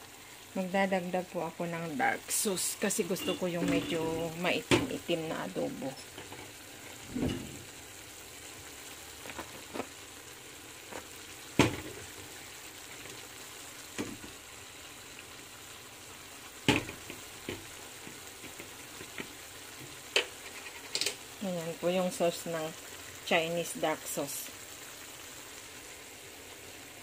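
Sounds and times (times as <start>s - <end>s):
food sizzling in wok: 0.0s - 27.0s
clicks and knocks in wok: 16.7s - 21.2s.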